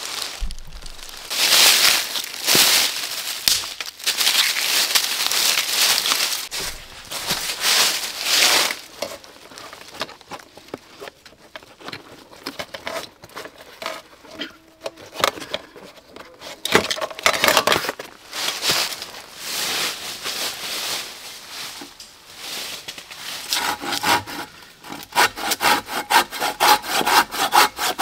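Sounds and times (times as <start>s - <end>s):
crunching in dry leaves: 0.0s - 10.2s, 18.2s - 23.5s.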